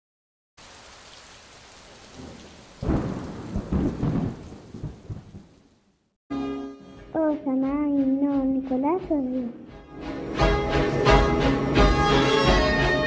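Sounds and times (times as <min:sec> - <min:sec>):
steady rain hiss: 0:00.6 - 0:06.1
thunder rumbling: 0:01.6 - 0:06.0.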